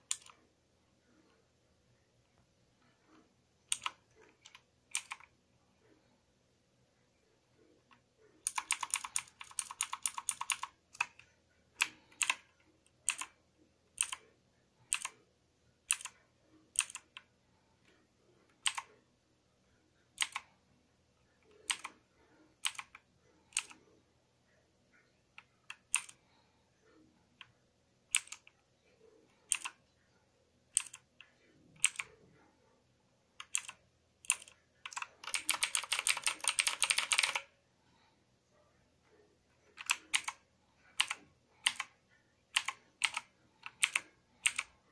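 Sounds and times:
mechanical keyboard typing: 0.0 - 0.4, 3.7 - 5.3, 7.9 - 13.4, 14.0 - 14.2, 14.9 - 15.2, 15.9 - 17.2, 18.6 - 18.9, 20.2 - 20.4, 21.5 - 22.0, 22.6 - 23.8, 25.4 - 26.2, 28.1 - 28.6, 29.5 - 29.8, 30.7 - 31.2, 31.8 - 32.2, 33.4 - 37.5, 39.8 - 40.4, 41.0 - 41.9, 42.5 - 44.8.

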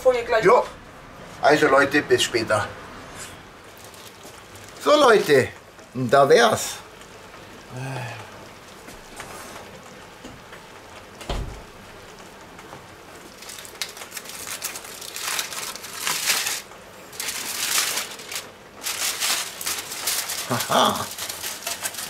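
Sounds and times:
aluminium foil crinkling: 3.6 - 7.1, 12.8 - 22.0.

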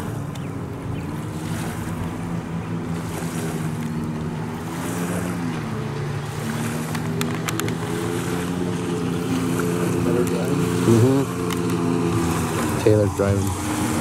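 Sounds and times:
jet ski engine running fast: 0.0 - 14.0
rush of water spray: 3.0 - 14.0.

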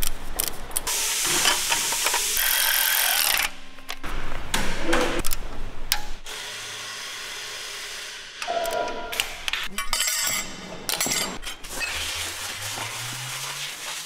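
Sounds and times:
metal tools clinking: 8.5 - 11.7.

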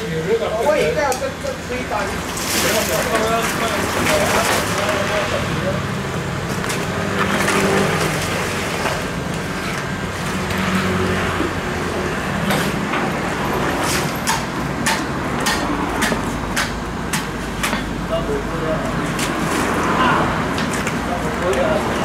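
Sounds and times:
street traffic hum: 0.0 - 22.0.

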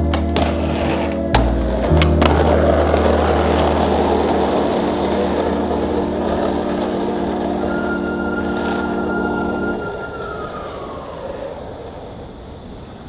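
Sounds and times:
skateboard landing clack: 0.0 - 7.0
steady high tone: 0.0 - 12.8
music drone: 0.0 - 13.0
skateboard wheels rolling on concrete: 0.0 - 13.0.

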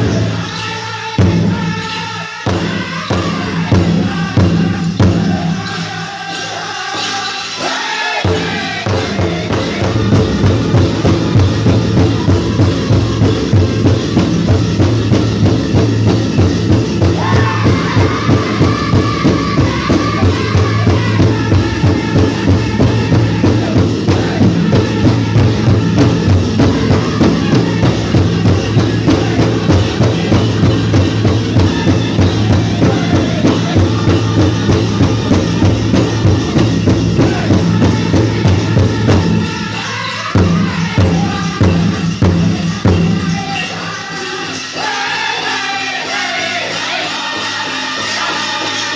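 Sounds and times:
people singing high: 0.0 - 14.5, 15.4 - 48.9
large drum beating: 8.2 - 39.8, 40.4 - 43.5.

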